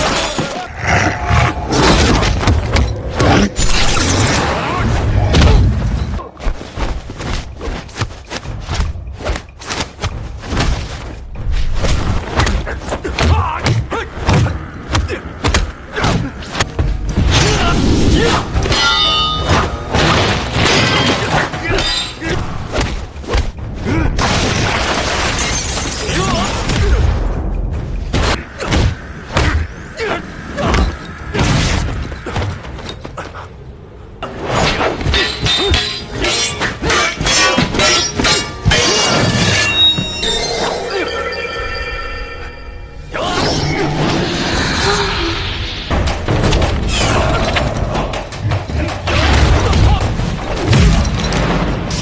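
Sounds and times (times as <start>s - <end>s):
film music: 0.0s - 52.0s
punches and strikes: 6.8s - 32.8s.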